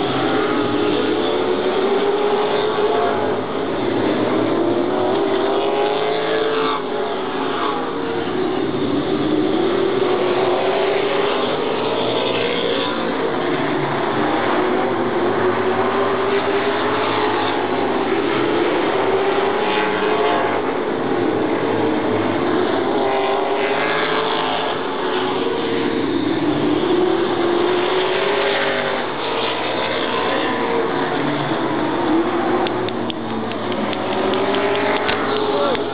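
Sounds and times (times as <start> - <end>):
stock car engines passing: 0.0 - 35.9.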